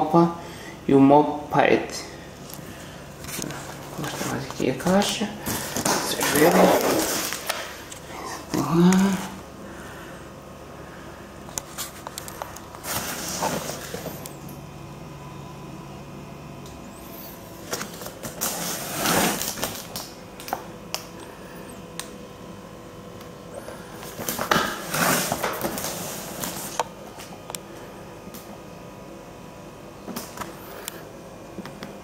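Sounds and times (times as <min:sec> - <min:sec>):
cardboard box rubbing and scraping: 0:18.5 - 0:19.5.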